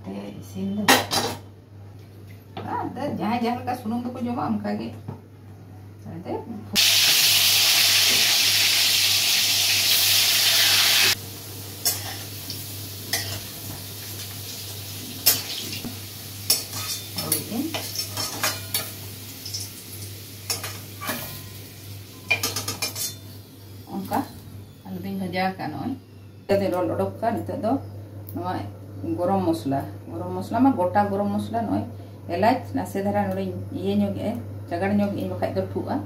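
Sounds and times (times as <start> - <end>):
food sizzling in hot oil: 6.8 - 24.4.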